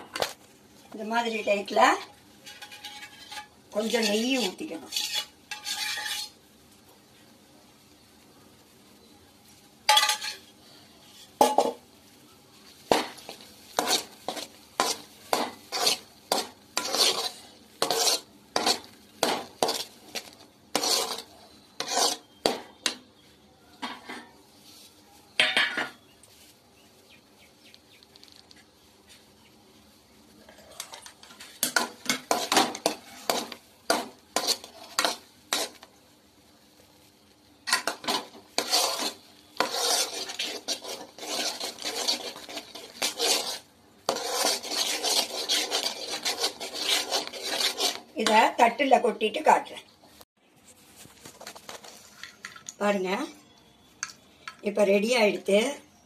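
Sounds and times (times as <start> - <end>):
steel spatula scraping a pan: 1.8 - 6.4, 9.9 - 11.8, 12.7 - 24.6, 30.4 - 35.9, 37.7 - 48.8.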